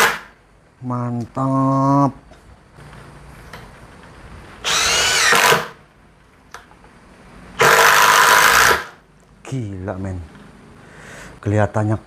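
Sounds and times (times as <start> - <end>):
impact driver driving screw: 4.6 - 5.8, 7.6 - 9.0.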